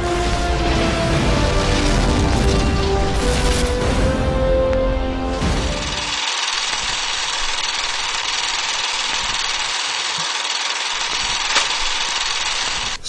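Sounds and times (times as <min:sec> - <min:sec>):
film projector running: 0:05.5 - 0:13.0.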